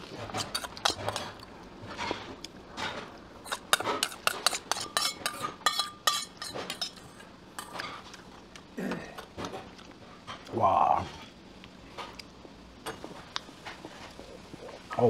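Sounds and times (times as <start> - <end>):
cutlery clinking against dishes: 2.8 - 8.0.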